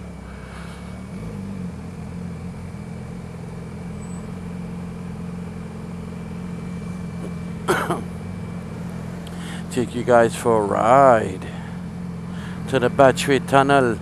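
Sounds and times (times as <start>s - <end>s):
motorcycle engine running: 0.0s - 14.0s.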